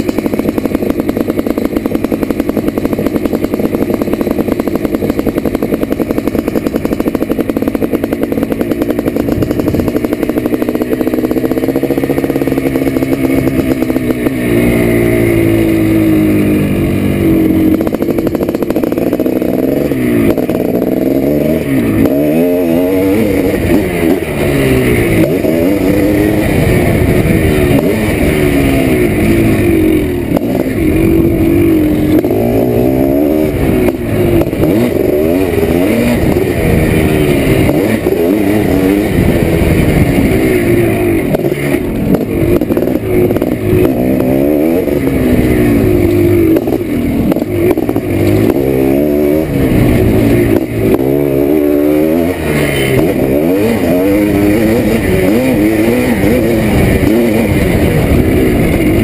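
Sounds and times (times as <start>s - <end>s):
two-stroke motorcycle engine revving: 0.0s - 59.0s.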